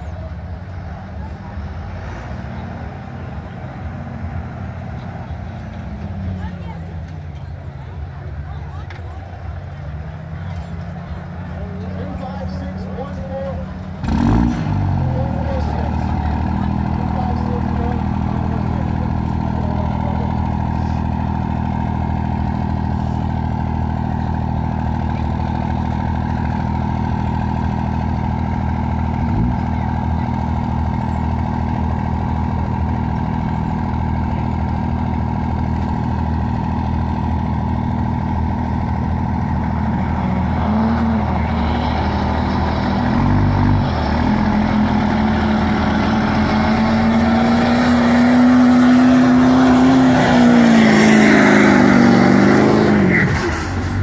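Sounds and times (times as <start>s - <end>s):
diesel engine running loudly: 0.0s - 54.0s.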